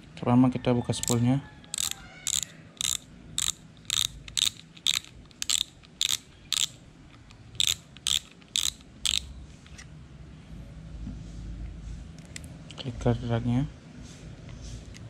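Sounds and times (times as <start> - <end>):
fishing reel drag clicking: 1.0 - 6.8, 7.6 - 9.3.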